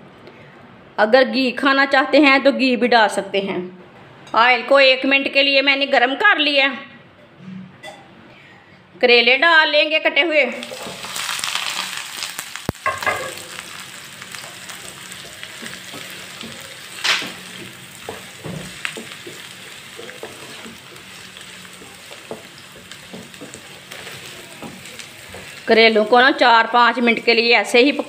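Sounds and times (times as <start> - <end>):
vegetables sizzling in hot oil: 10.5 - 28.0
spatula knocking and scraping pan: 14.4 - 26.2.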